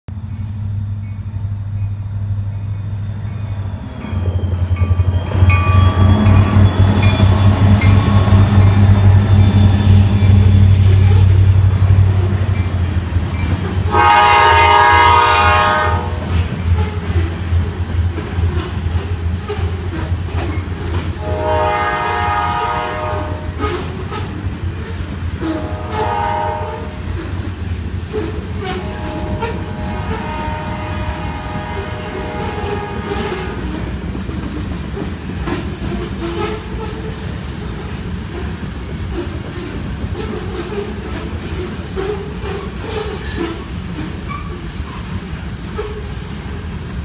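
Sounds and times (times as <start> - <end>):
diesel locomotive engine drone: 0.1 - 47.0
freight train rumbling on rails: 0.1 - 47.0
bell dinging: 2.6 - 10.4
locomotive air horn blast: 13.8 - 17.0, 21.2 - 24.3, 25.4 - 27.3, 28.2 - 33.7, 36.2 - 37.0.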